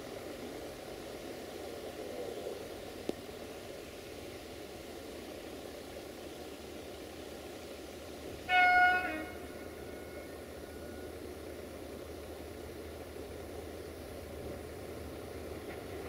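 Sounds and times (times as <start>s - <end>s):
background noise: 0.0s - 16.0s
locomotive horn blast: 8.4s - 11.1s.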